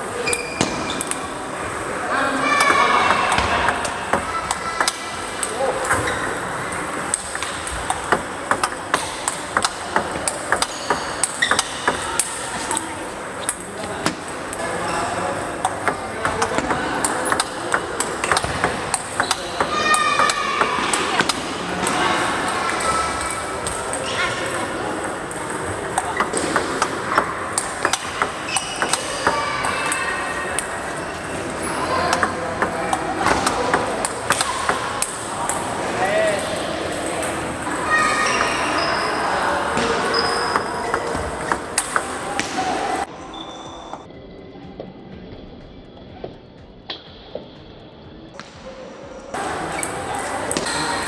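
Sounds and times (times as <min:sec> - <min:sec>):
ping pong ball clicking on paddles: 0:02.6 - 0:06.4, 0:07.0 - 0:14.6, 0:15.6 - 0:31.2, 0:32.0 - 0:35.7, 0:40.4 - 0:42.2
ball bouncing on table: 0:07.3 - 0:12.3.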